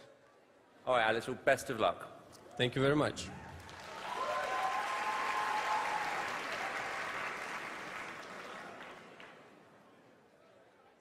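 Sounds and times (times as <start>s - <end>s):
studio audience applauding: 3.6s - 9.6s.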